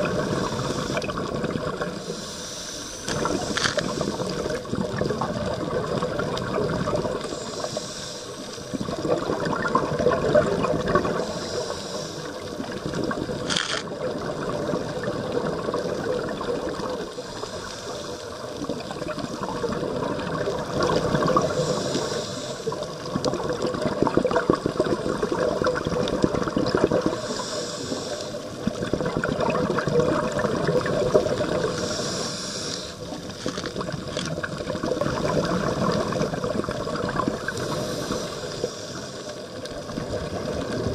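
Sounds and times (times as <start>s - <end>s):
regulator inhale hiss: 0.0s - 1.3s, 1.9s - 4.7s, 7.1s - 8.9s, 11.0s - 12.8s, 17.0s - 19.3s, 20.8s - 23.1s, 26.9s - 28.8s, 31.2s - 33.5s, 37.3s - 39.8s
exhaled bubbles gurgling underwater: 0.0s - 40.9s.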